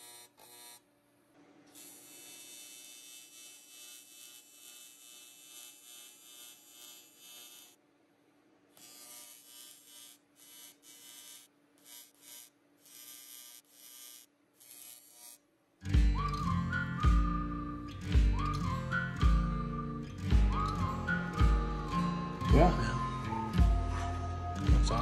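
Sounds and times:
welding arc buzzing: 0:00.0 - 0:00.9, 0:01.6 - 0:07.8, 0:08.7 - 0:15.4.

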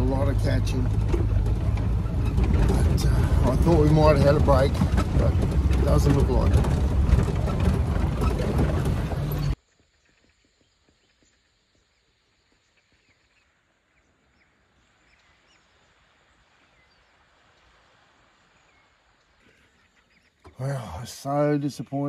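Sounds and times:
loud moving buggy noise: 0:00.0 - 0:09.6
faint waterbird calls: 0:18.3 - 0:20.9.

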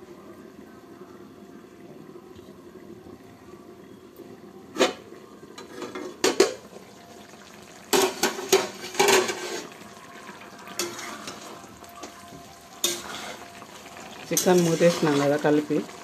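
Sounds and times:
metal lid clanking on pot: 0:05.6 - 0:06.7, 0:07.9 - 0:09.7.

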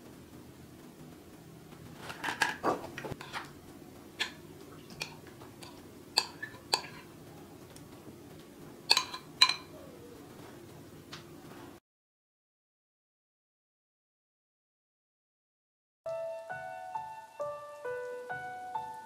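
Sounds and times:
utensil scraping metal bowl: 0:02.0 - 0:03.5, 0:04.2 - 0:07.1
ringing taps on metal bowl: 0:08.9 - 0:09.7.

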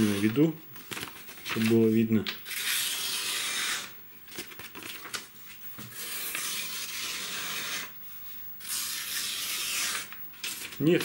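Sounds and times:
paper rustling and crinkling: 0:00.0 - 0:03.1, 0:04.3 - 0:06.8, 0:10.4 - 0:11.0
knife slicing through paper: 0:08.6 - 0:11.0.

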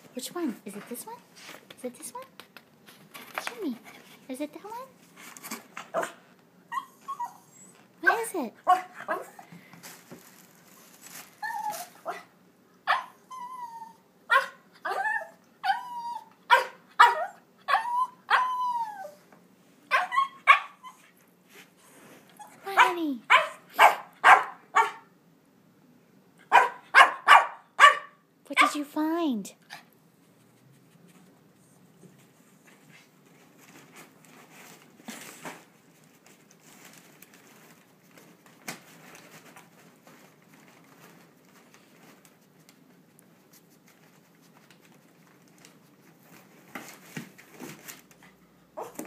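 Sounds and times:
dog yipping and whining: 0:06.7 - 0:07.8, 0:11.4 - 0:12.3, 0:12.9 - 0:19.3, 0:19.9 - 0:21.2
dog scratching at wrapping paper: 0:09.8 - 0:12.2, 0:33.5 - 0:42.6.

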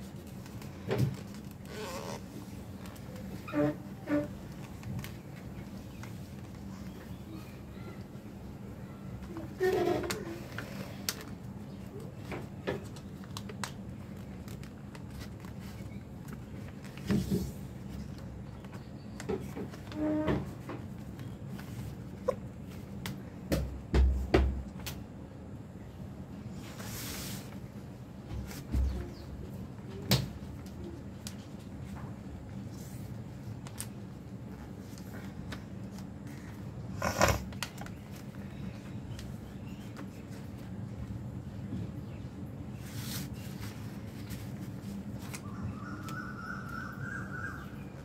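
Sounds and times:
paper rustling and folding: 0:00.0 - 0:23.0, 0:26.6 - 0:41.7, 0:42.7 - 0:46.2
hand brushing over paper: 0:26.6 - 0:27.7, 0:42.8 - 0:45.0.

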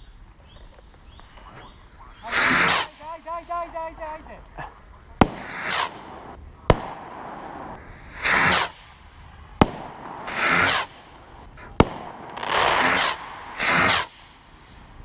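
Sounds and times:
rocket launch whooshes: 0:02.2 - 0:03.1, 0:05.2 - 0:15.0
firework cracks: 0:02.2 - 0:15.0.

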